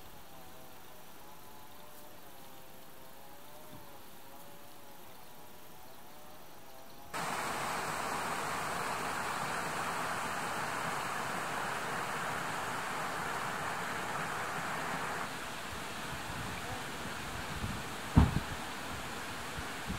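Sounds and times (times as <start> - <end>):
faint outdoor ambience: 0.0 - 19.9
steady rushing noise: 7.2 - 19.9.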